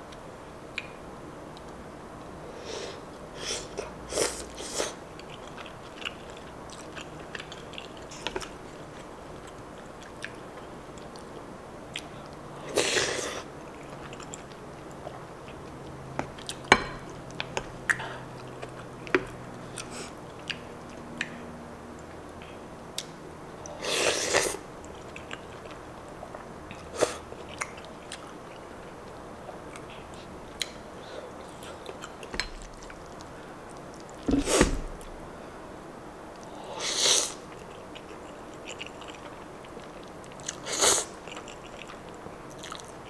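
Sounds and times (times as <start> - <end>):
wet chewing: 5.2 - 12.4, 24.8 - 30.8, 31.4 - 35.1, 37.5 - 43.0.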